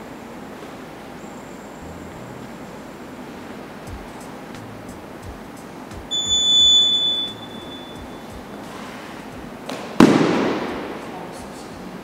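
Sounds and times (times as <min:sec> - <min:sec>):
high electronic timer beep: 0:06.1 - 0:08.6.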